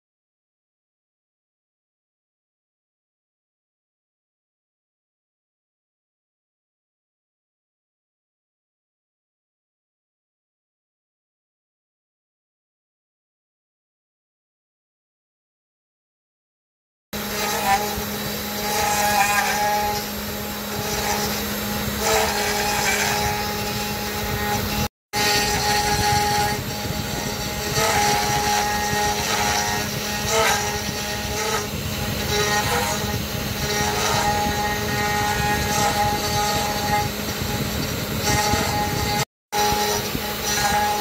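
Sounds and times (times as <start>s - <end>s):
end mill cutting wood: 17.2s - 41.0s
spindle motor humming: 17.2s - 41.0s
stepper motors whining: 17.2s - 41.0s.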